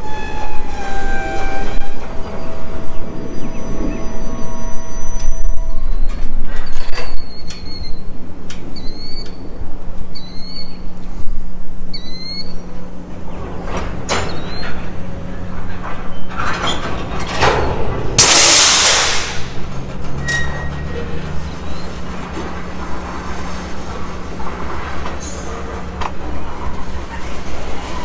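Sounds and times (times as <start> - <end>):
high squeaks: 0.0 - 8.1, 14.0 - 17.8, 20.1 - 22.2
freight train rumbling: 0.0 - 28.0
loud hiss: 18.2 - 19.7.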